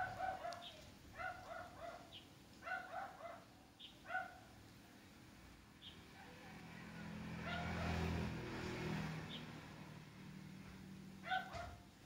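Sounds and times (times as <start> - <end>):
small dog yapping: 0.0 - 4.4, 7.4 - 8.1, 11.2 - 11.8.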